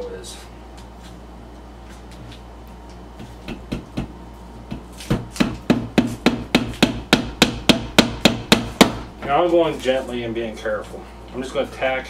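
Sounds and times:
hammer tapping nail: 4.7s - 9.0s.

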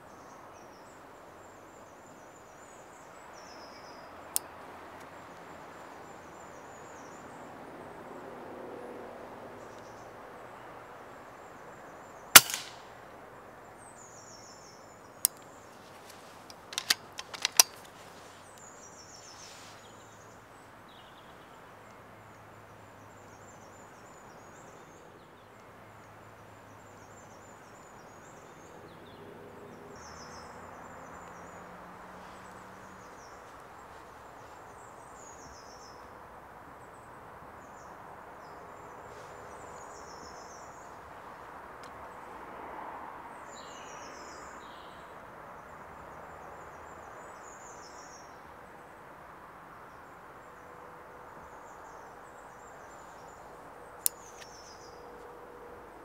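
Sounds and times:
loud sharp crack: 12.4s - 12.9s
clicks and clacks: 16.5s - 17.9s.

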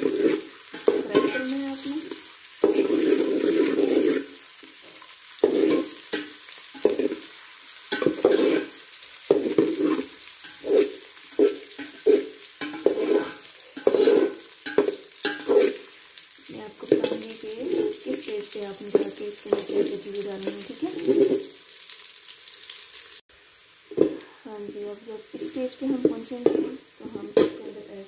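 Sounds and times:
spatula scraping pot bottom: 0.0s - 1.9s, 2.6s - 7.3s, 7.9s - 15.9s, 18.8s - 21.5s, 26.0s - 26.8s
onions sizzling in a pot: 0.0s - 28.0s.

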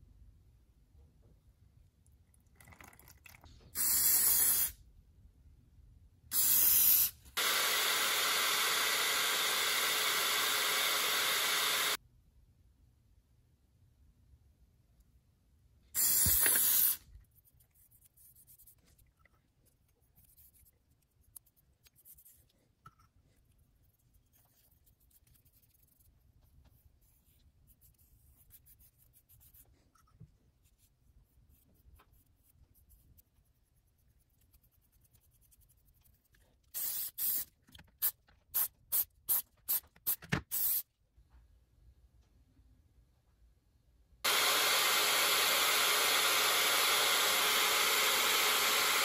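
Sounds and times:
aerosol spray can spraying: 3.8s - 4.8s, 6.3s - 12.0s, 16.0s - 17.1s, 36.7s - 40.9s
faint handling sounds: 16.2s - 36.8s.

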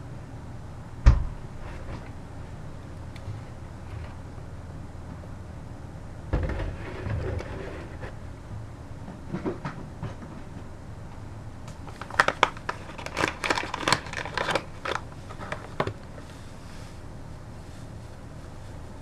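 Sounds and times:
paper package crackling: 11.8s - 16.3s.

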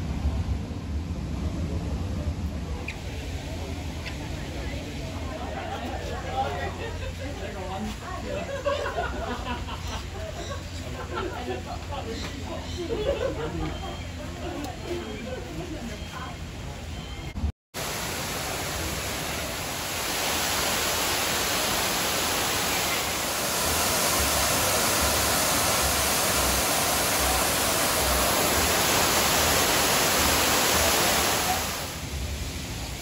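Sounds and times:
waterfall pouring into pool: 17.8s - 33.0s.

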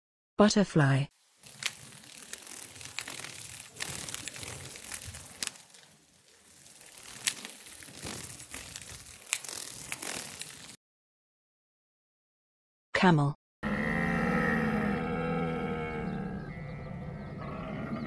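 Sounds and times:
rustling crackling noise: 1.1s - 10.8s.

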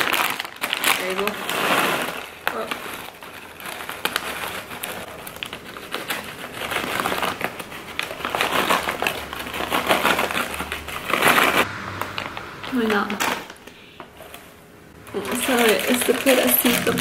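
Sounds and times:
snack bag crinkling: 0.0s - 11.6s, 15.3s - 17.0s.

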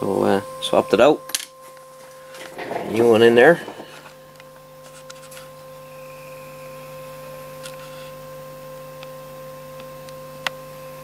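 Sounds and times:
steady test tone: 0.2s - 7.6s
low hum: 1.4s - 7.7s.

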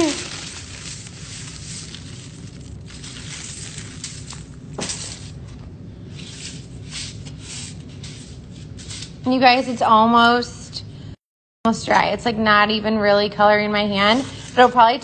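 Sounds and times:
salt poured from plastic bag: 0.0s - 5.3s
plastic and foil crinkling: 0.0s - 5.6s.

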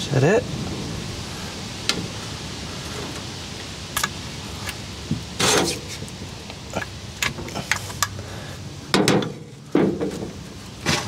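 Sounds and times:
steady hiss: 0.0s - 11.0s
metal rattle: 5.4s - 6.1s, 8.9s - 11.0s.

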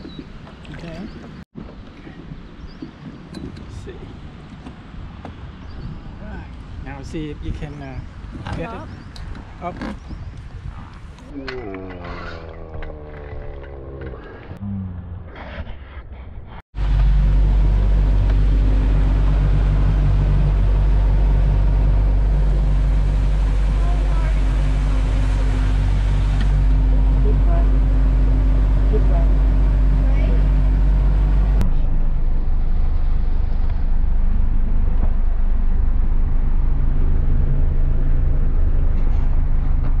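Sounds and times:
wind: 0.0s - 40.0s
water rushing: 16.8s - 31.6s
outboard motor drone: 16.8s - 40.0s.

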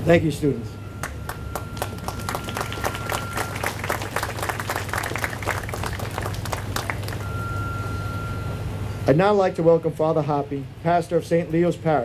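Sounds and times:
steady low hum: 0.0s - 12.0s
crowd applauding: 1.0s - 7.4s.

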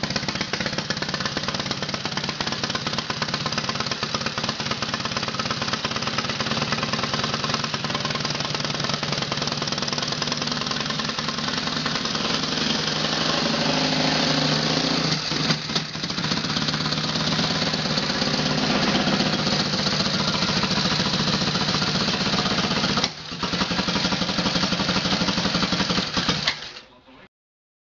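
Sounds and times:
motorcycle engine running rough: 0.0s - 26.8s.

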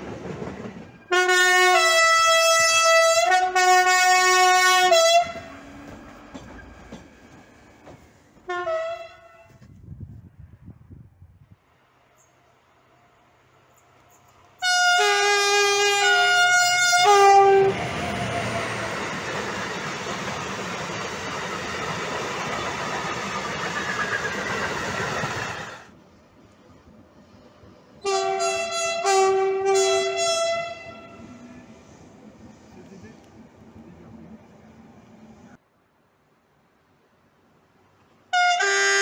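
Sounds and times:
train wheels on rails: 0.0s - 3.0s, 4.8s - 10.3s, 16.0s - 35.6s
freight train passing: 0.0s - 35.6s
two-tone locomotive horn: 1.1s - 5.7s, 8.4s - 9.7s, 14.6s - 18.9s, 28.0s - 31.6s, 38.3s - 39.0s.

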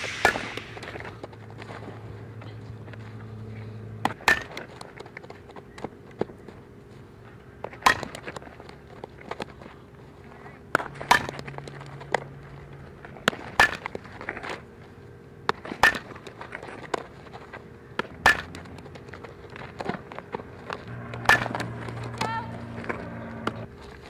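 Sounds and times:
ball hit by bat: 0.0s - 1.0s, 18.0s - 18.6s, 20.9s - 23.7s.

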